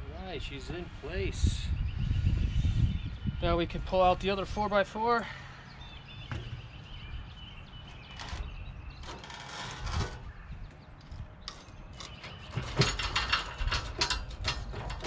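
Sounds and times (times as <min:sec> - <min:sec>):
wooden block scraping on steel: 0:07.9 - 0:10.4.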